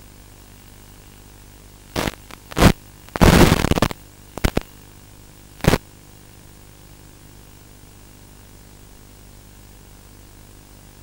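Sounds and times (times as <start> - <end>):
loud crackling bursts: 1.9 - 4.7, 5.6 - 5.8
radio static hiss: 1.9 - 6.2.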